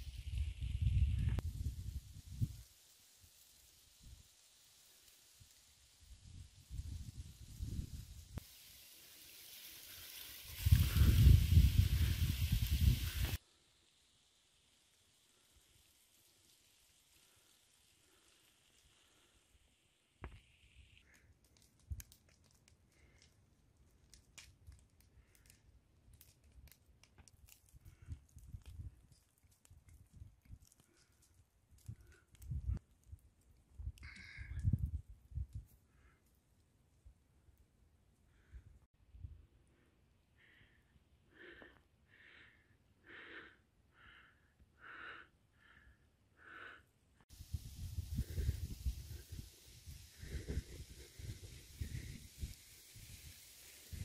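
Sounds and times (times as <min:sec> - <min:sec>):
faint crackles and clicks: 0:00.0 - 0:36.7
person breathing hard: 0:40.4 - 0:46.9.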